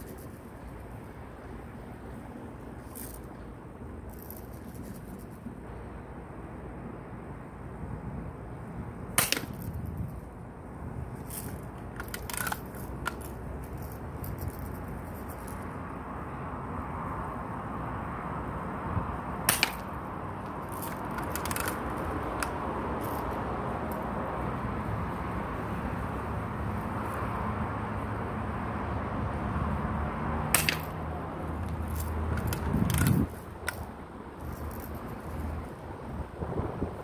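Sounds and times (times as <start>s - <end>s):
air rifle cracks: 30.6s - 31.0s.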